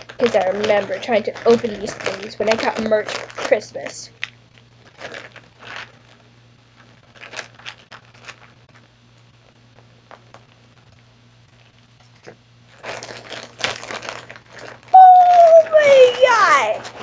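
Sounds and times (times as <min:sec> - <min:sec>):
plastic bag crinkling: 0:00.0 - 0:08.9, 0:12.7 - 0:17.0.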